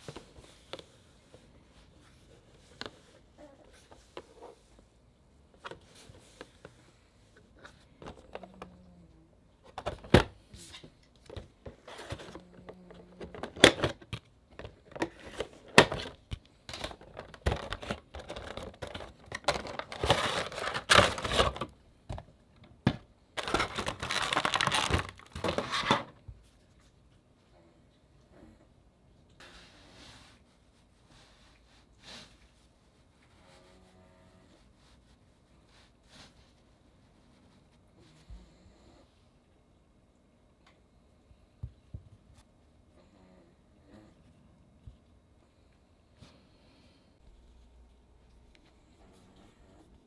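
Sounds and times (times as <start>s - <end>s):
plastic insert crinkling: 9.7s - 26.2s.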